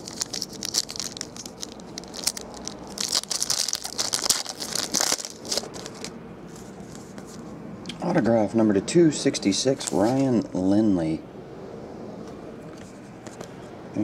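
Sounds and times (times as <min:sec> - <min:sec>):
foil wrapper tearing and crinkling: 0:00.0 - 0:06.2.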